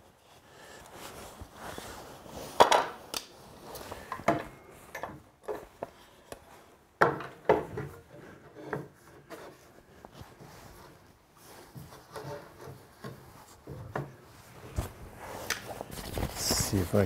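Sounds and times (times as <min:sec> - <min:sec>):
wood scraping and handling: 0:03.7 - 0:16.8
wooden knocks and clatters: 0:07.0 - 0:09.6, 0:11.8 - 0:14.3.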